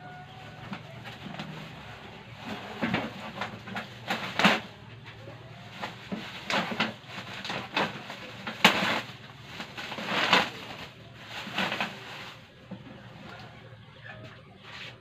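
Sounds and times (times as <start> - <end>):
plastic wrap crinkling: 5.4 - 13.5.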